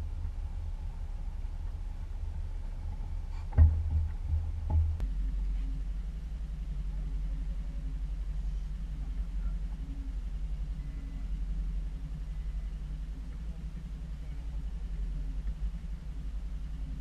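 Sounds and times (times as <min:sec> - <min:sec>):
outboard motor running: 0:00.0 - 0:17.0
sharp knocks: 0:03.5 - 0:05.0.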